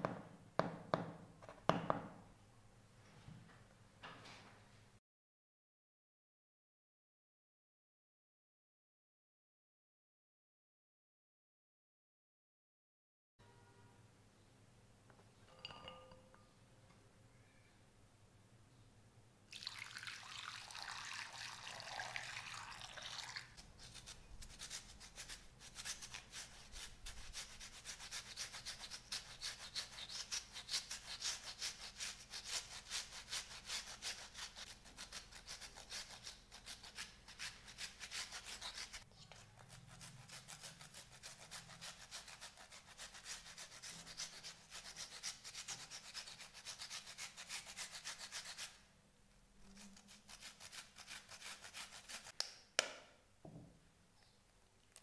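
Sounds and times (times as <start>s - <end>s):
potato grating on metal grater: 23.6s - 48.8s, 49.6s - 52.4s.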